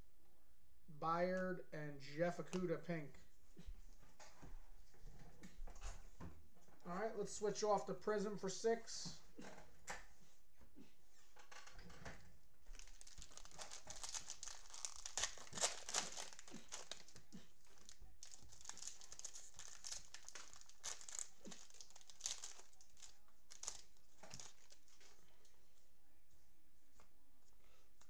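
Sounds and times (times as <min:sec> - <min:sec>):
cellophane wrapper crinkling: 0:12.6 - 0:25.2.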